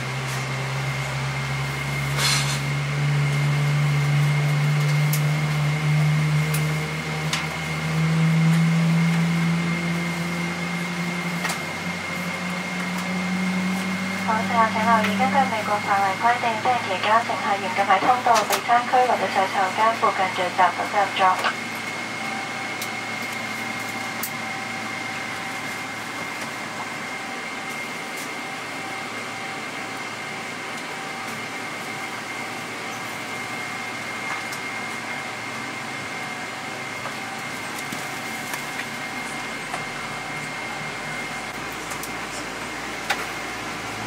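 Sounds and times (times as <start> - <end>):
rushing ventilation air: 0.0 - 27.0
airliner cabin drone: 0.0 - 44.0
high whine: 0.0 - 44.0.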